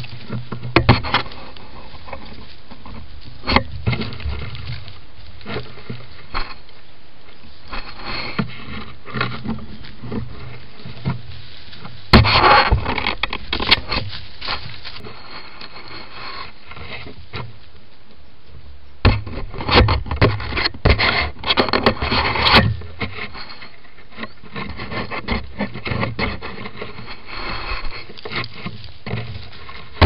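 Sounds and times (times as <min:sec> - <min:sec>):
knocks and bumps: 0:00.0 - 0:01.3, 0:07.7 - 0:15.0, 0:19.0 - 0:23.3
fur scraping over plastic housing: 0:07.7 - 0:17.2.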